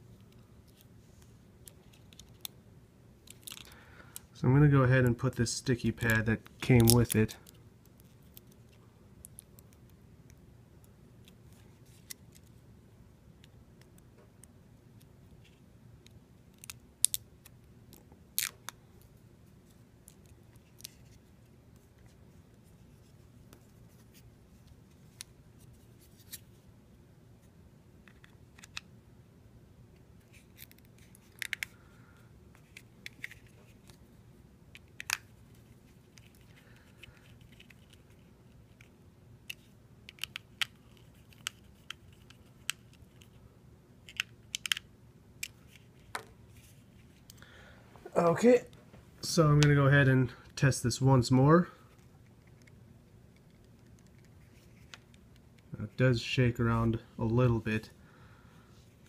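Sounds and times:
faint low hum: 0.0s - 59.0s
plastic parts clicking: 30.6s - 31.7s, 44.0s - 46.3s.

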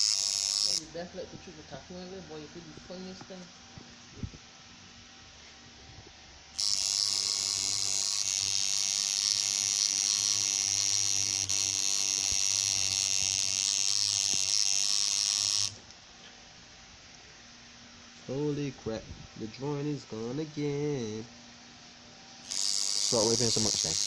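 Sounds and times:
tattoo machine buzzing: 0.0s - 3.4s, 6.5s - 15.8s, 22.4s - 24.0s.

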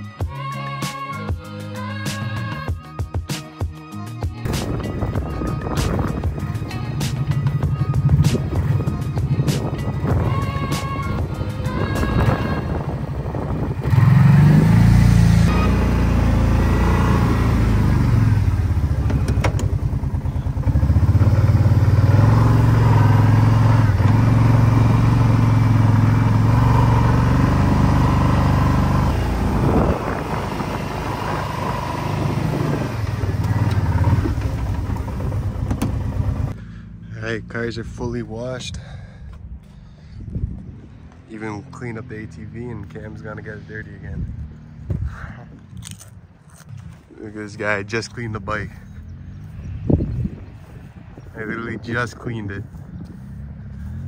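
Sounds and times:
atv engine revving: 4.4s - 39.2s.

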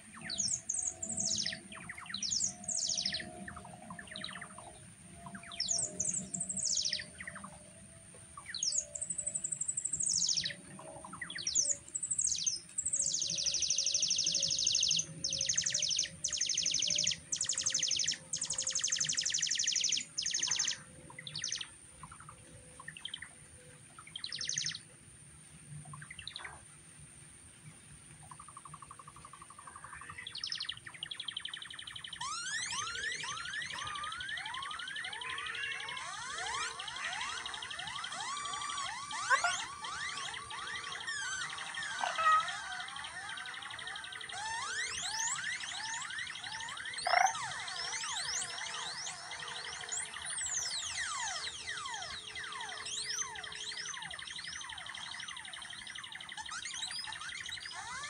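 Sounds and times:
electronic bird-like chirps: 0.0s - 7.8s, 8.4s - 23.3s, 23.9s - 24.8s, 28.2s - 58.0s
fast buzzing trills: 32.0s - 58.0s
electronic held tones: 32.2s - 55.0s, 56.4s - 58.0s.

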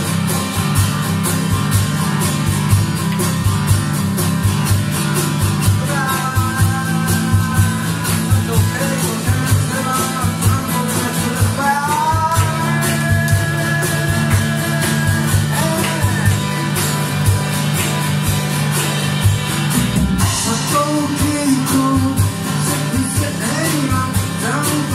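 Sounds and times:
acoustic guitar: 0.0s - 24.9s
drum kit beat: 0.0s - 24.9s
person singing melody: 5.6s - 17.3s, 20.2s - 24.9s.

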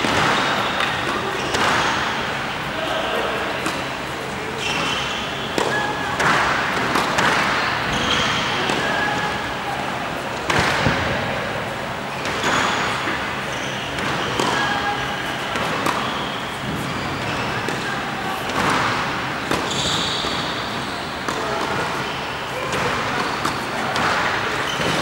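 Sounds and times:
tennis shoes squeaking: 0.0s - 11.0s, 11.7s - 25.0s
tennis ball hits: 3.0s - 9.3s, 10.4s - 11.2s, 14.0s - 17.0s, 17.6s - 20.6s, 22.7s - 25.0s.

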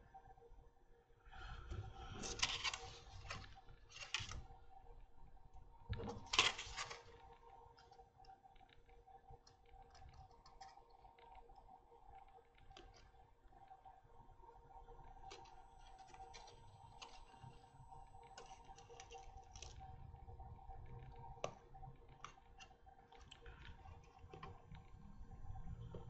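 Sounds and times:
faint clicks and taps: 1.4s - 26.0s.

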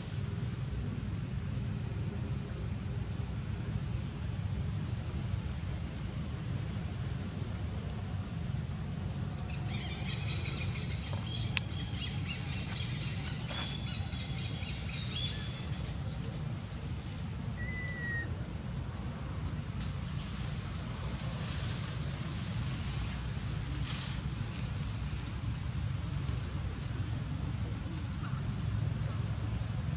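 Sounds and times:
high thin chirping calls: 9.6s - 16.2s, 17.6s - 18.3s.

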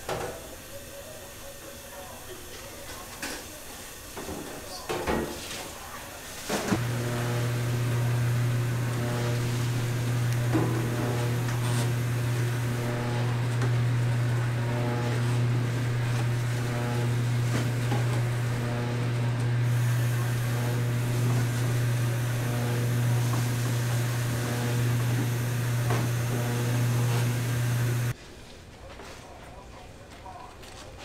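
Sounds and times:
low machine hum: 6.8s - 28.1s.

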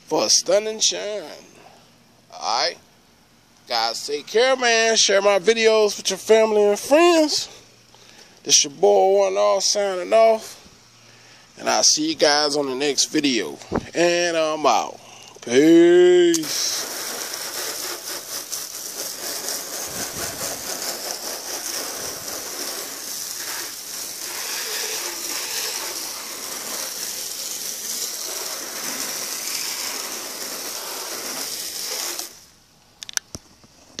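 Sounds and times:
hose water spraying on car: 3.6s - 10.5s, 14.1s - 32.7s.

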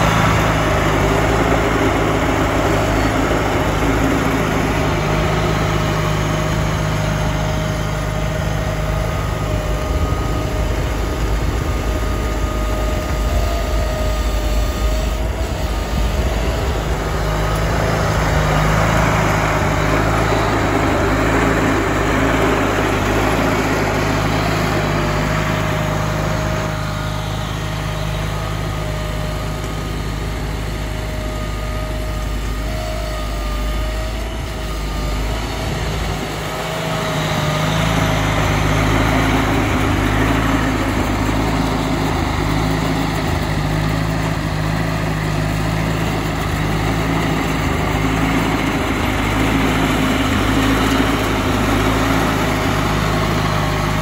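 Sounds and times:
snowblower throwing snow: 0.0s - 54.0s
tractor engine running: 0.0s - 54.0s.

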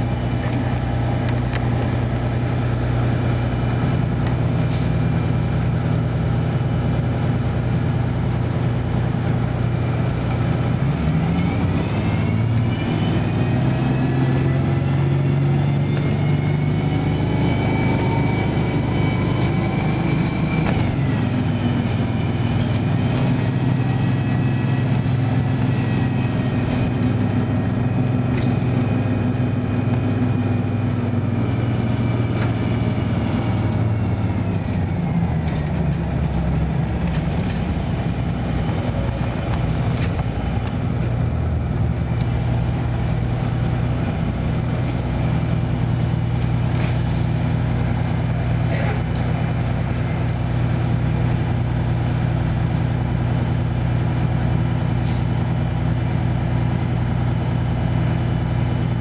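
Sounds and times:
diesel bus engine: 0.0s - 59.0s.

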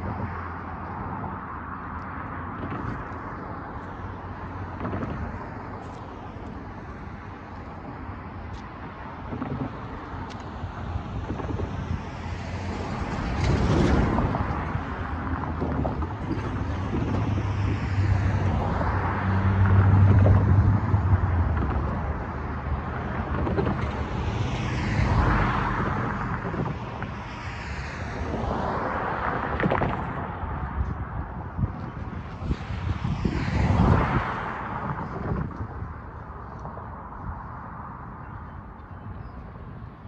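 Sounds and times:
cars passing: 0.0s - 40.0s
wind on microphone: 0.0s - 40.0s.

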